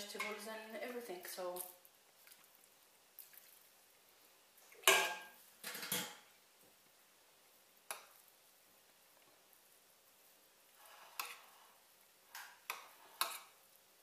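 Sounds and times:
metal ladle clinking on pot: 0:04.8 - 0:06.2.

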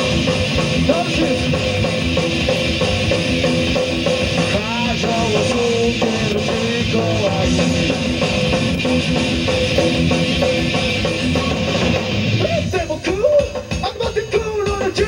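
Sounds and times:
person singing: 0:00.0 - 0:01.8, 0:04.4 - 0:08.5, 0:11.2 - 0:15.0
distorted electric guitar: 0:00.0 - 0:15.0
drum kit: 0:00.0 - 0:15.0.

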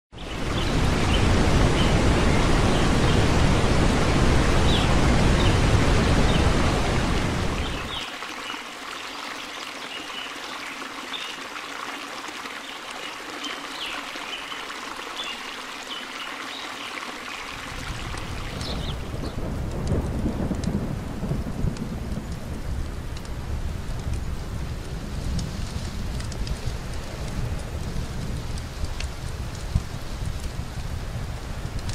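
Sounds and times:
large waterfall roaring: 0:00.2 - 0:31.9
thin water hiss: 0:07.3 - 0:19.1.

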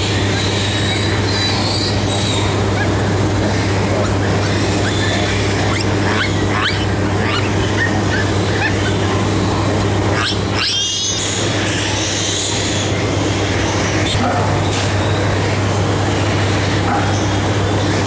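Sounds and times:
piglets squealing: 0:00.0 - 0:14.2
steady low hum: 0:00.0 - 0:18.0.

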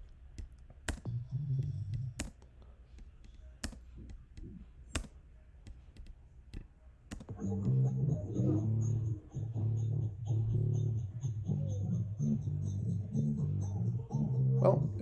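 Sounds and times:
computer mouse clicks: 0:00.0 - 0:07.4
low bass music: 0:07.3 - 0:15.0.

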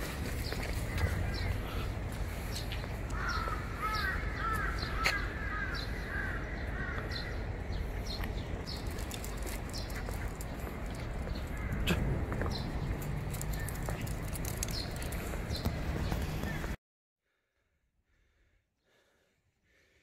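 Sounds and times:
crow cawing: 0:03.1 - 0:07.4, 0:11.5 - 0:12.0.

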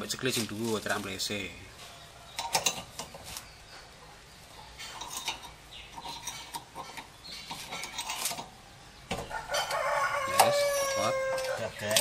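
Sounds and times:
hand tool clinking on metal: 0:04.8 - 0:08.5, 0:09.6 - 0:12.0.

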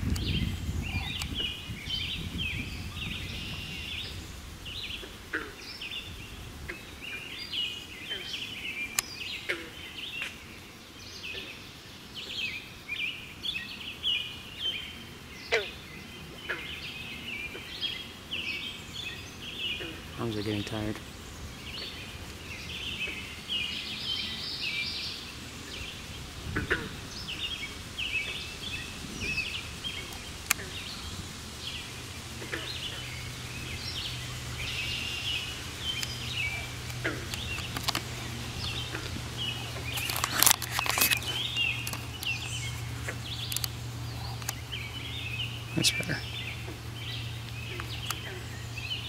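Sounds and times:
songbirds singing: 0:00.0 - 0:49.0
low steady hum: 0:13.4 - 0:49.0
sharp clicks: 0:30.1 - 0:30.8, 0:35.9 - 0:42.6, 0:43.4 - 0:43.8, 0:44.4 - 0:44.6, 0:47.4 - 0:48.3.

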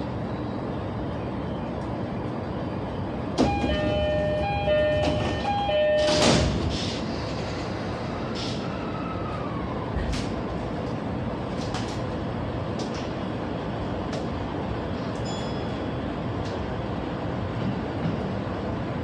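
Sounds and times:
train equipment hum: 0:00.0 - 0:19.0
sliding doors closing: 0:03.3 - 0:08.9
two-note door chime: 0:03.4 - 0:06.3.

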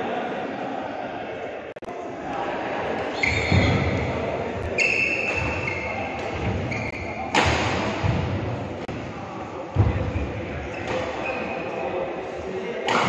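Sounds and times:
court shoes squeaking: 0:03.0 - 0:08.4, 0:09.7 - 0:11.9
racket hitting shuttlecock: 0:07.3 - 0:08.0.

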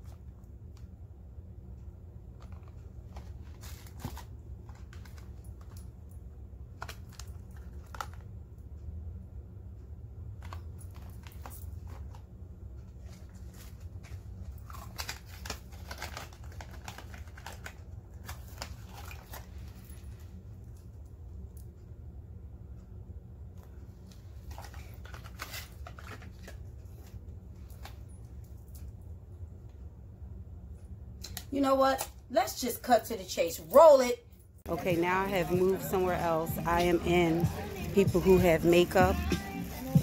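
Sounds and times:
steady low hum: 0:00.0 - 0:40.0
plastic packaging crinkling: 0:13.0 - 0:19.8, 0:24.4 - 0:27.2.

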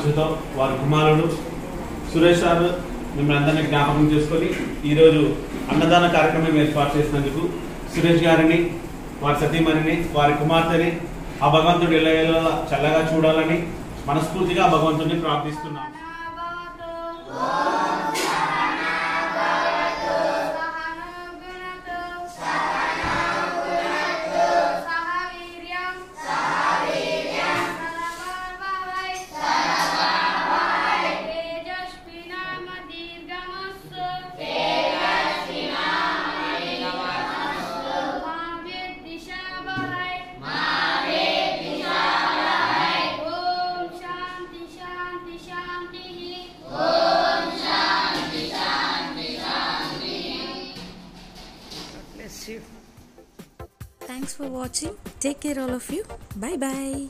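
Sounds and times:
children singing in unison: 0:16.2 - 0:51.2.

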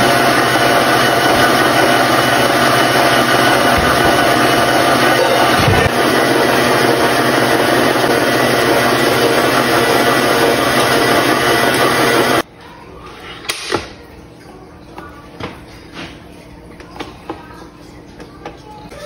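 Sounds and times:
stand mixer motor running: 0:00.0 - 0:12.4.

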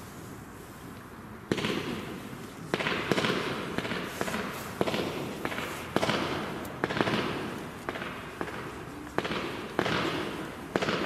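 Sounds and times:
firework launch bangs: 0:02.7 - 0:11.0.

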